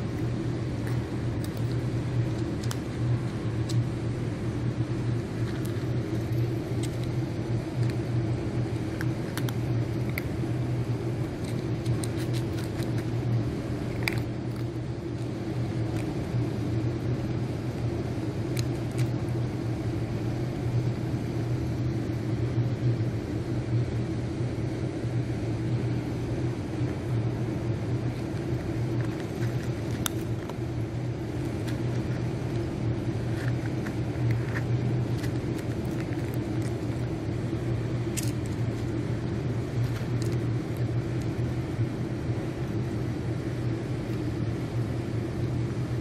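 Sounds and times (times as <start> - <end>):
cats crunching dry kibble: 0.0 - 3.8, 5.1 - 16.8, 18.4 - 19.4, 27.9 - 41.8
loud low hum: 0.0 - 46.0.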